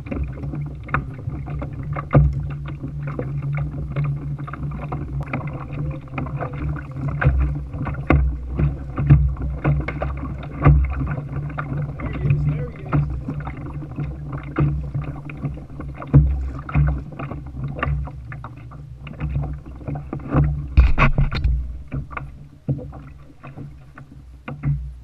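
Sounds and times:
waves lapping against hull: 0.0 - 25.0
low rumble: 20.6 - 22.4.

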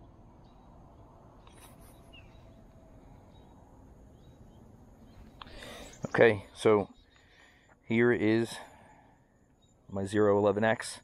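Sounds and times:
bird chirp: 0.0 - 11.0.

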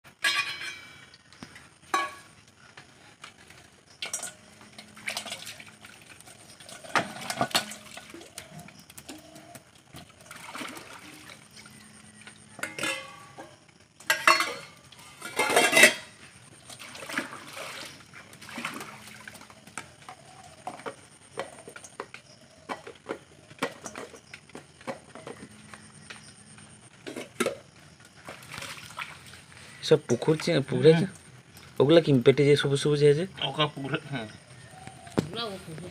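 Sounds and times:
fish clinking in metal bowl: 0.1 - 1.1, 1.8 - 2.4, 3.9 - 25.5.

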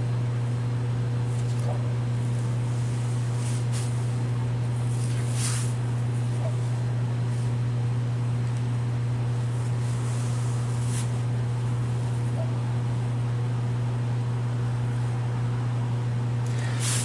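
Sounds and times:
faint rustles: 9.4 - 12.4.

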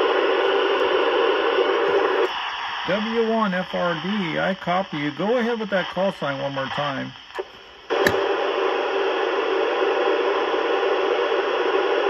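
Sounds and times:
radio static hiss: 0.0 - 12.0
click: 7.3 - 8.2.

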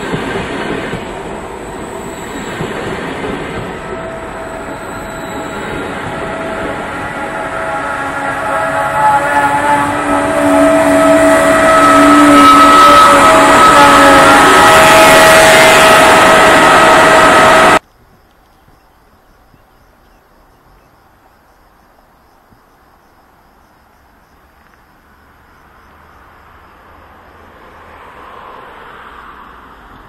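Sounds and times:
distant noise: 0.0 - 17.8
electric locomotive passing: 0.0 - 17.8
insect chirping: 1.1 - 7.1, 17.8 - 27.5.

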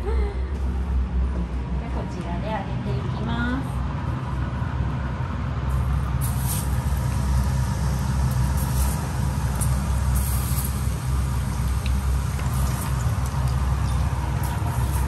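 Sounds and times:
oil bubbling and crackling: 5.7 - 15.0.

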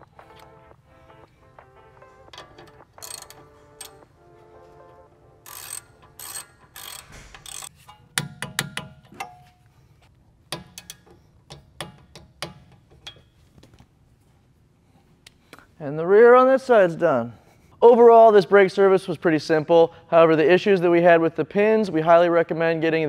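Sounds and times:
socket ratchet clicking: 2.3 - 4.0, 5.4 - 9.3.

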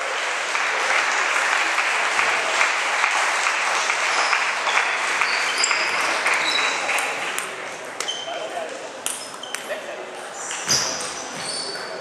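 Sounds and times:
applause in a hall: 0.0 - 7.8
sports shoes squeaking: 4.2 - 7.0, 8.0 - 12.0.

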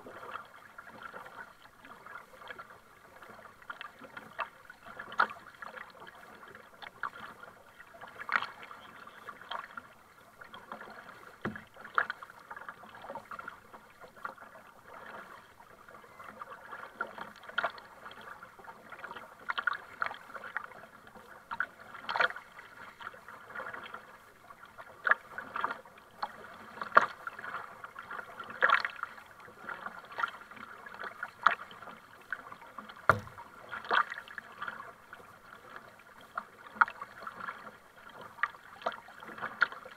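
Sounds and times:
kayak paddle splashing: 0.0 - 39.9
water washing along kayak: 0.0 - 39.9.

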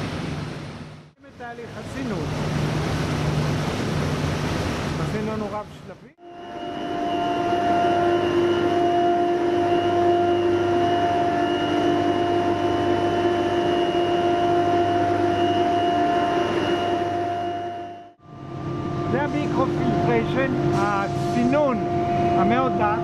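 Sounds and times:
industrial pumps humming: 0.0 - 23.0
steady whining tones: 6.2 - 23.0.

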